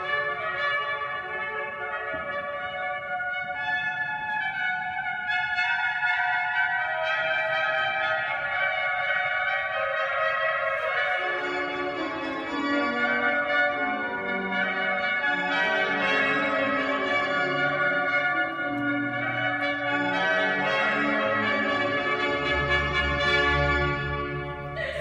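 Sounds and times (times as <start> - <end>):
baroque trumpet melody: 0.0 - 24.9
lower accompanying notes: 9.5 - 25.0.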